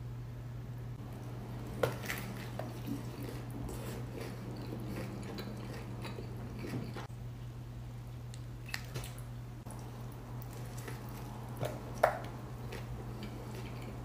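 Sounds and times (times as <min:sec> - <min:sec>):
chewing: 0:01.2 - 0:07.1, 0:08.3 - 0:14.0.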